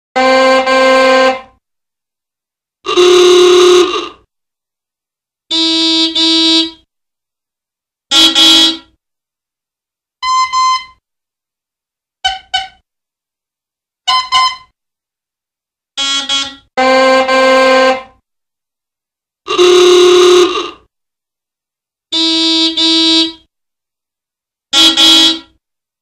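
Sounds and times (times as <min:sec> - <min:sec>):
old car horns honking: 0:00.2 - 0:01.5, 0:02.9 - 0:04.2, 0:05.5 - 0:06.8, 0:08.1 - 0:08.9, 0:16.0 - 0:18.1, 0:19.5 - 0:20.8, 0:22.2 - 0:23.4, 0:24.8 - 0:25.5.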